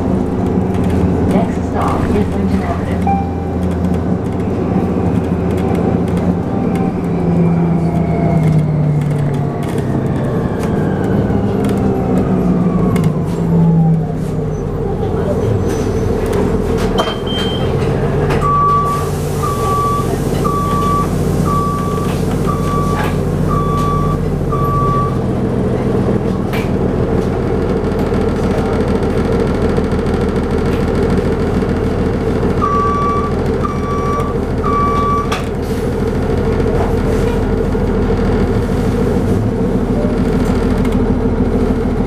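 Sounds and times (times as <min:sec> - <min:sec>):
bus drivetrain droning: 0:00.0 - 0:42.0
reverse warning alarm beeping: 0:03.0 - 0:03.7, 0:18.4 - 0:25.2, 0:32.6 - 0:35.4.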